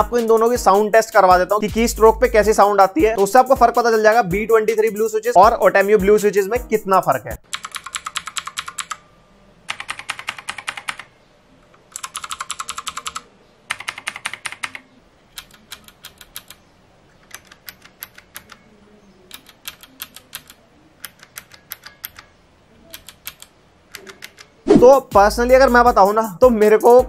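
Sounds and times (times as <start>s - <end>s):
mechanical keyboard typing: 7.4s - 9.0s, 9.7s - 18.7s, 19.3s - 22.3s, 22.9s - 24.6s.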